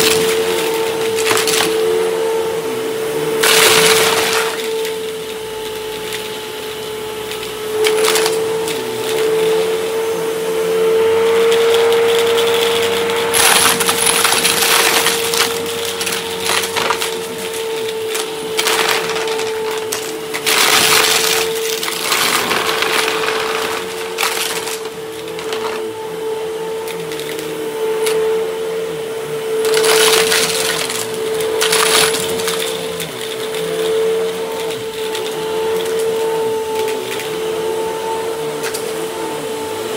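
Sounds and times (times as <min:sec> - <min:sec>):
vacuum cleaner motor whine: 0:00.0 - 0:39.9
rattling and crackling suction: 0:11.0 - 0:25.9.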